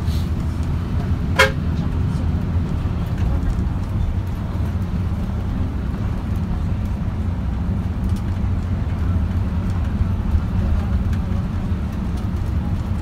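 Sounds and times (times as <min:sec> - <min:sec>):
road vehicle rumbling: 0:00.0 - 0:13.0.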